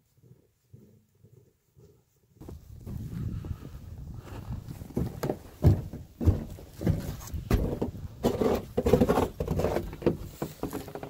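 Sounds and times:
footsteps crunching in snow: 2.4s - 11.0s.

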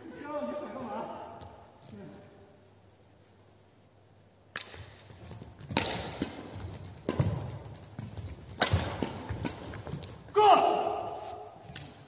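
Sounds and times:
rackets hitting shuttlecock: 4.5s - 10.4s.

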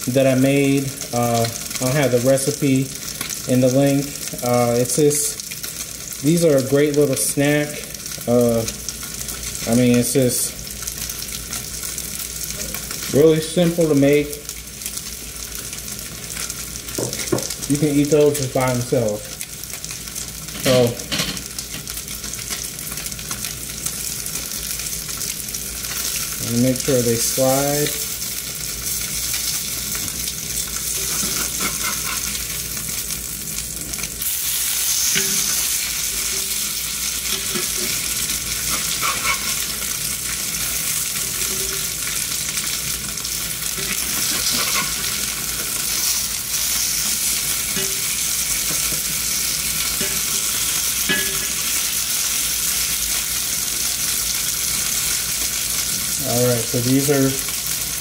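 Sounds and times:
croquettes sizzling in skillet: 0.0s - 58.0s
metal spatula scraping pan: 31.0s - 32.4s, 38.7s - 39.8s, 43.8s - 45.2s.

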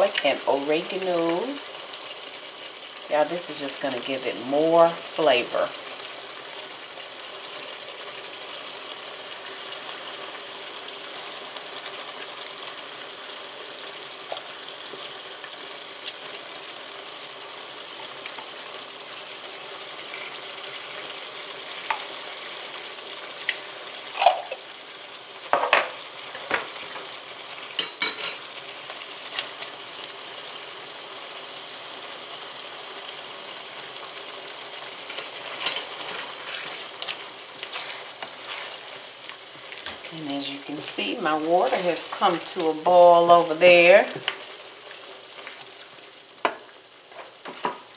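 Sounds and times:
meat sauce sizzling in a skillet: 0.0s - 47.9s.

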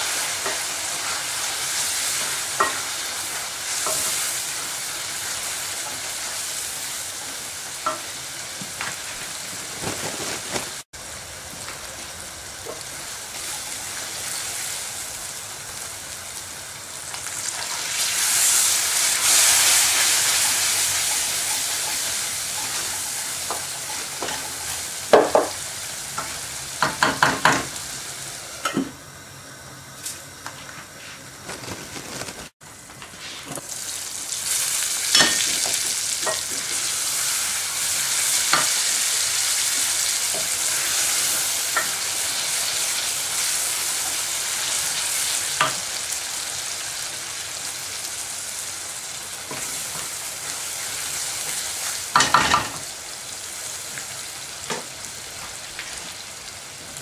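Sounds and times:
meat sizzling in a pot: 0.0s - 57.0s.

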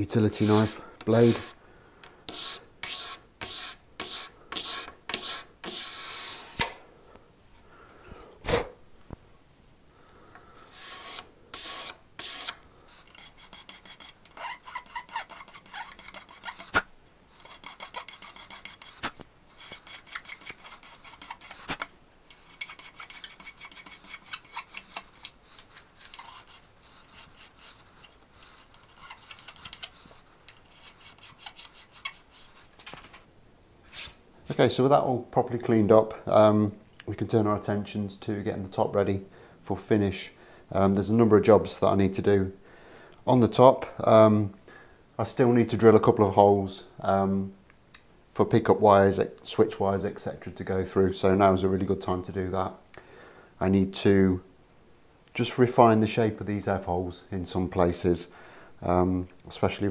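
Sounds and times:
knife blade scraping: 10.7s - 16.8s, 17.4s - 32.6s.

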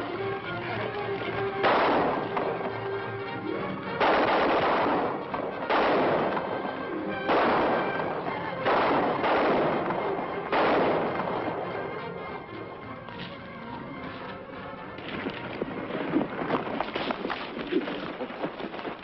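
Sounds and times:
background music: 0.0s - 19.0s
gunshots with echo: 1.6s - 3.2s, 3.8s - 12.5s.

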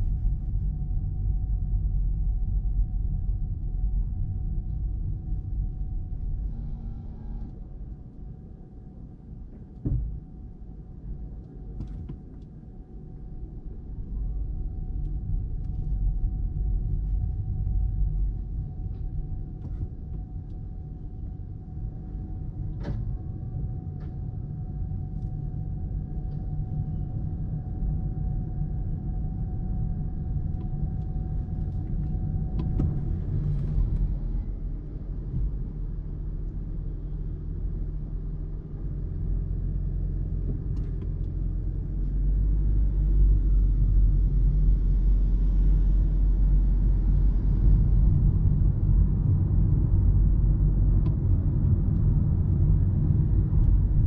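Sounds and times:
faint steady whine: 0.0s - 54.0s
road and tyre rumble: 30.5s - 54.0s.

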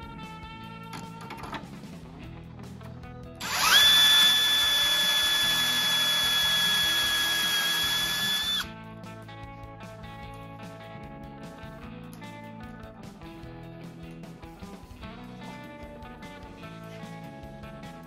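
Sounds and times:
guitar music: 0.0s - 18.0s
cordless drill whining: 3.4s - 8.7s.

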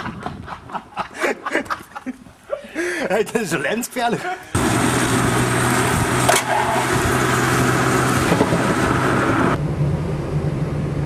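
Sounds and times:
wind rush on microphone: 0.0s - 0.8s, 5.2s - 11.0s
car engine and road noise: 4.6s - 11.0s.

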